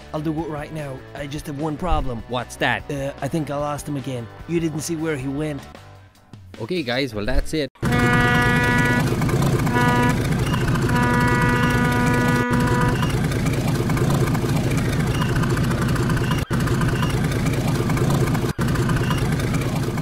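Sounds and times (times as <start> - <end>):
pitched tones: 7.8 - 13.3
boat engine rumble: 7.8 - 20.0.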